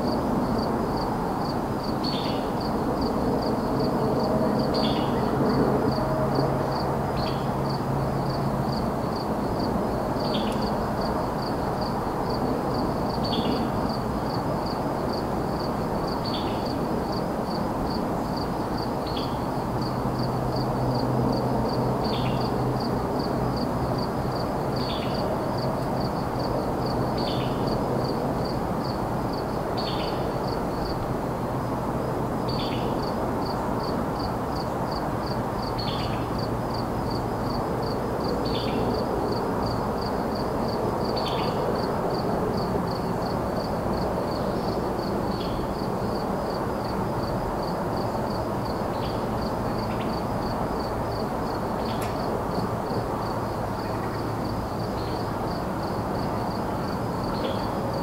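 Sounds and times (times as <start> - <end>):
crickets chirping: 0.0 - 58.0
distant highway traffic: 0.0 - 58.0.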